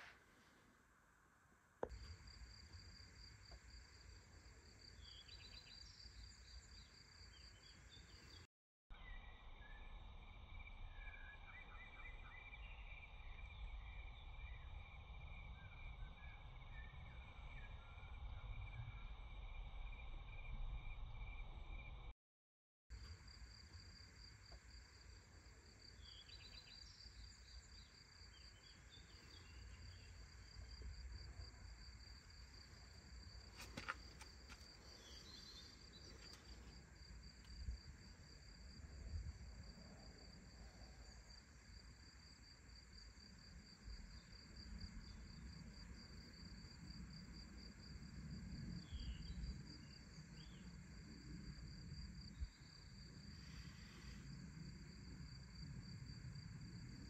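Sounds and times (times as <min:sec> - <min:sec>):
faint bird chirps: 0:04.9 - 0:14.8, 0:25.9 - 0:30.7, 0:34.8 - 0:36.7.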